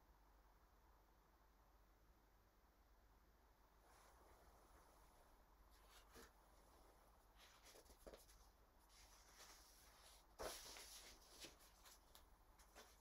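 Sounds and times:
paper rustling: 5.8 - 6.4, 7.4 - 13.0
paper crinkle: 7.4 - 13.0.

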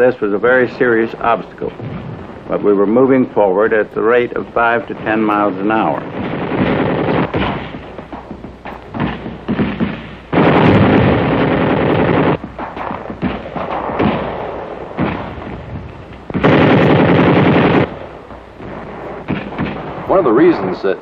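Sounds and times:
single gunshots: 0.9 - 20.9
automatic gunfire bursts: 3.8 - 15.7, 16.3 - 20.4.

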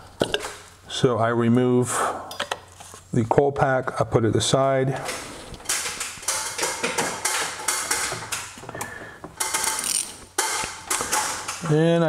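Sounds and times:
metal hand tools clinking: 9.4 - 11.7.

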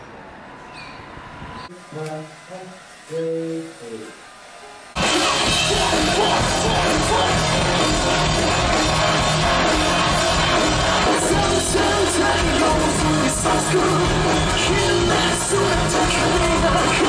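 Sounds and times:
loud rock music with vocals: 5.0 - 17.0.

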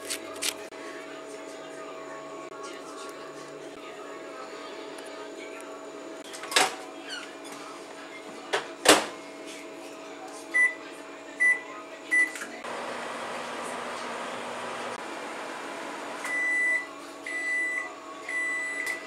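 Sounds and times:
microwave oven humming: 10.6 - 19.0.

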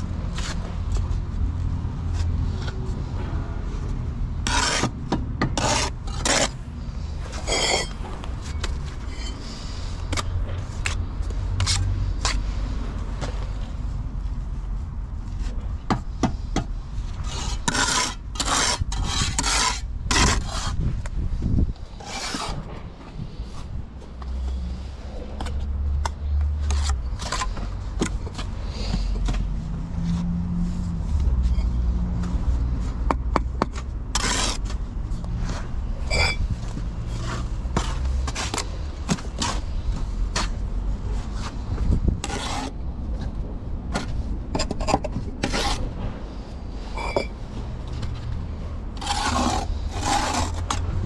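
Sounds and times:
trowel scraping wet mortar: 4.4 - 11.0, 17.2 - 20.8, 22.0 - 22.6, 26.6 - 29.3, 33.6 - 34.7, 42.2 - 42.8, 44.0 - 45.9, 48.9 - 51.0.

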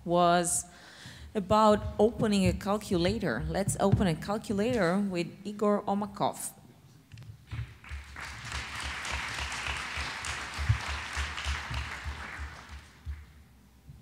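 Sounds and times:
audience applauding: 7.6 - 13.4.

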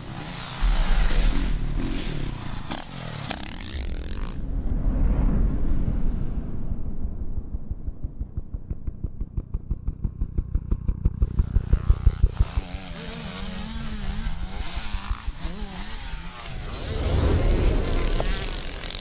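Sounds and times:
dirt bike engine revving: 0.0 - 4.4, 10.2 - 19.0.

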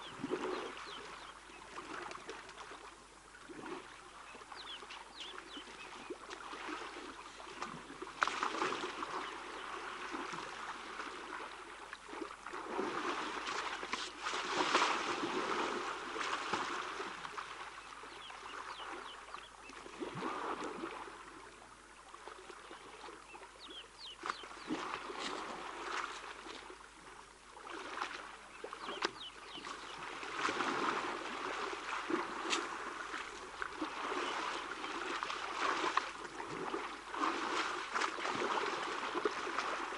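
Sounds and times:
elephants splashing in water: 4.6 - 19.1, 24.0 - 26.7, 27.7 - 39.9.

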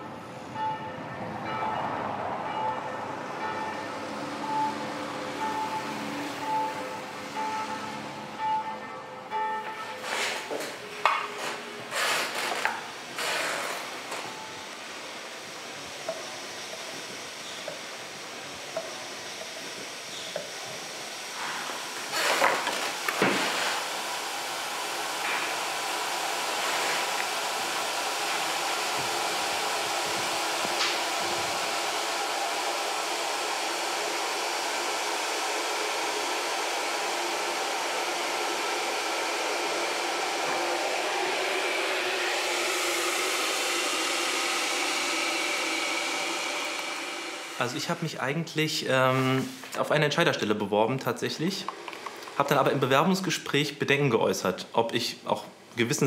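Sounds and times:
electric coffee grinder whirring: 10.0 - 10.7, 11.4 - 14.3, 16.2 - 47.6, 51.7 - 52.4.

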